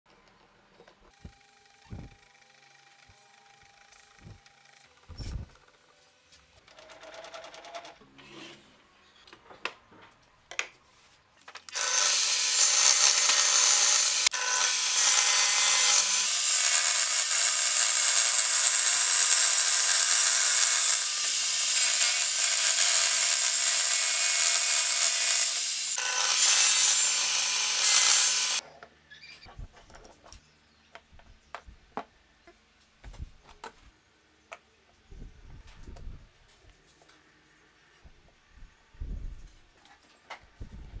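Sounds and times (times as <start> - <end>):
table saw cutting wood: 11.7 - 28.6.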